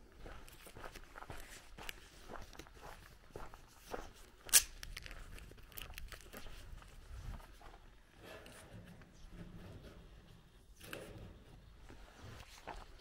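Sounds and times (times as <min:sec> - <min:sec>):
footsteps crunching on gravel: 0:00.0 - 0:08.0
sharp loud click: 0:04.5 - 0:04.8.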